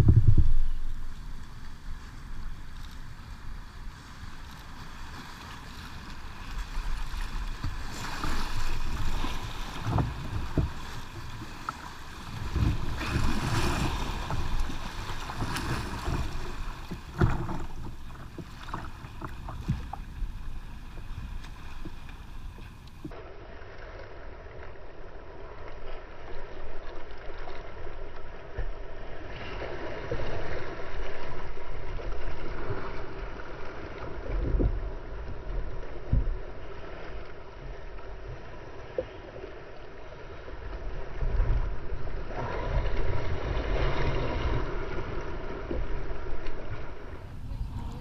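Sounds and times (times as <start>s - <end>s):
wind buffeting microphone: 0.0s - 2.0s, 47.0s - 48.0s
water splashing around kayak: 0.0s - 48.0s.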